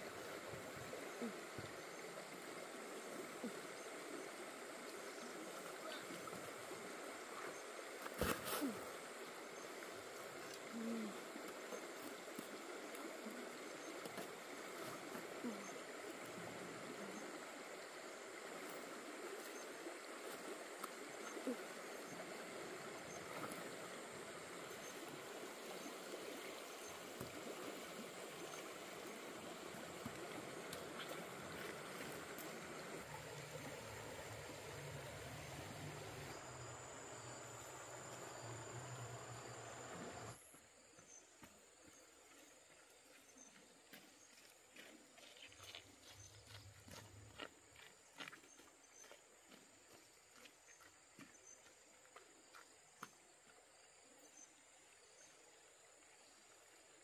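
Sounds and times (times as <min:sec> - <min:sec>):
stream flowing over stones: 0:00.0 - 0:40.4.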